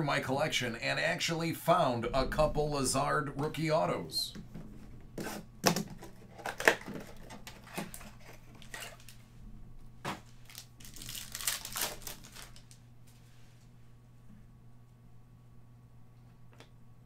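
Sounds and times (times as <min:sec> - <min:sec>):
plastic wrapper crinkling and tearing: 0:06.0 - 0:09.2, 0:10.4 - 0:12.8.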